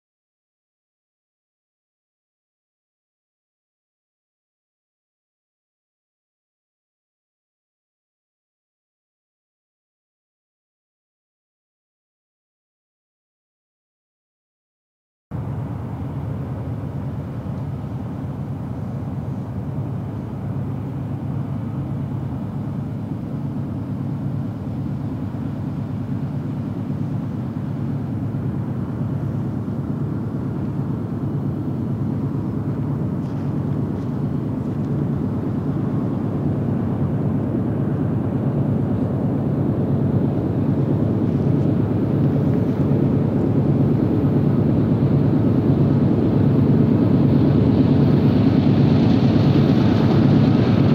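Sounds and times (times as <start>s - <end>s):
locomotive engine drone: 15.3s - 50.9s.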